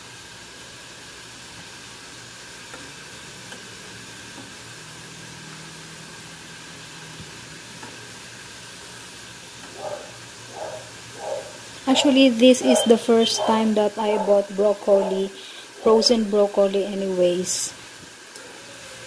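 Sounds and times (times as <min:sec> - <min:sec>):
water boiling in a pan: 0:00.0 - 0:19.0
tongs clicking on a pan: 0:03.5 - 0:03.7.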